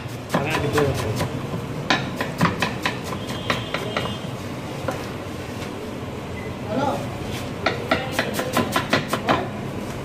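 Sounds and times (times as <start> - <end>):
knife chopping on wooden board: 0.0 - 4.2, 7.6 - 9.6.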